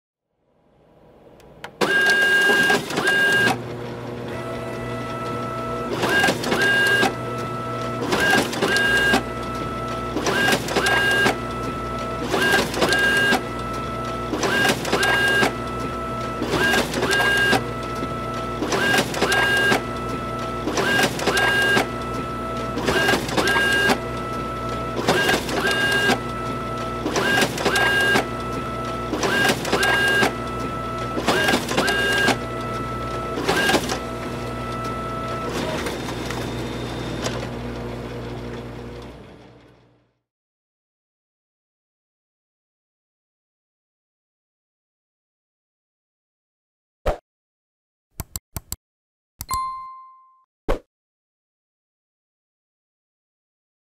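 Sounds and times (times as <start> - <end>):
photocopier motor hum: 1.3 - 40.0
photocopier mechanism noise: 1.6 - 39.4.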